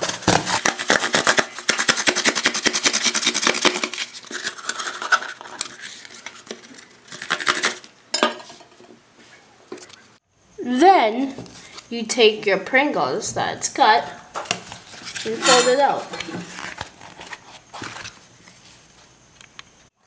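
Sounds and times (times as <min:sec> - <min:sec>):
knife sawing through cardboard: 0:00.0 - 0:05.4.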